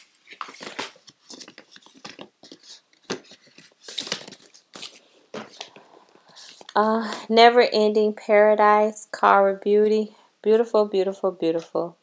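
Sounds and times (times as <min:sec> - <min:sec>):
plastic cases clacking together: 0:00.3 - 0:05.8.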